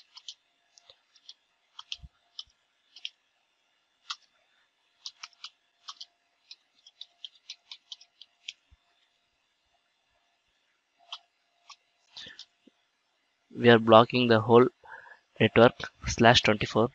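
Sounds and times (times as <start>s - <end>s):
computer keyboard typing: 0.0s - 3.2s, 4.0s - 4.3s, 5.0s - 8.6s.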